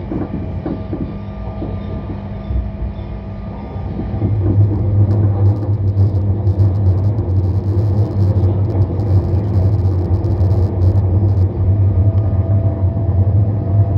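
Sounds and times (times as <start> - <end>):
train wheels rumbling: 0.0 - 13.9
faint high whine: 4.3 - 12.0.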